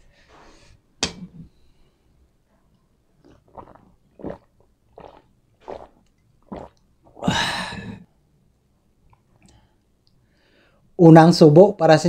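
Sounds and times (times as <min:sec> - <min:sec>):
person gulping water: 0:03.2 - 0:08.1
ahh breath out: 0:07.2 - 0:08.0.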